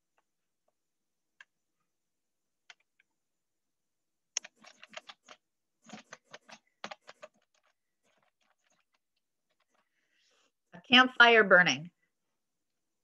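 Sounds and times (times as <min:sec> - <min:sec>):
computer keyboard typing: 0:04.4 - 0:09.9.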